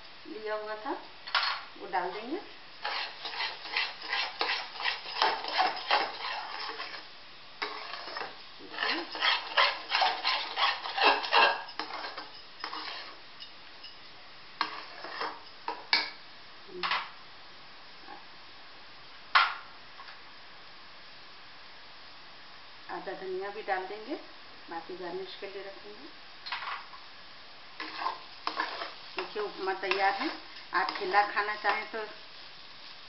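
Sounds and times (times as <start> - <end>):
spatula scraping a pan: 1.3 - 14.0, 14.6 - 16.1, 27.8 - 32.2.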